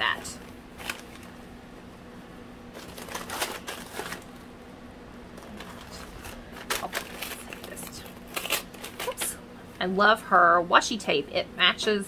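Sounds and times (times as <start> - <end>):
tissue paper rustling: 2.8 - 4.3, 5.5 - 9.3.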